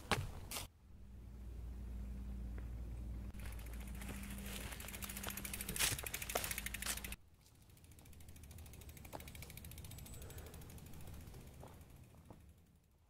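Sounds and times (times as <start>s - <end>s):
faint low rumble: 0.8s - 7.2s
bike freehub ratchet clicking: 3.4s - 12.8s.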